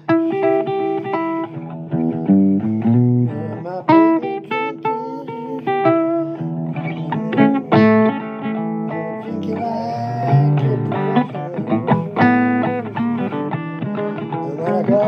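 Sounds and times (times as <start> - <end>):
guitar picking notes: 0.0 - 15.0.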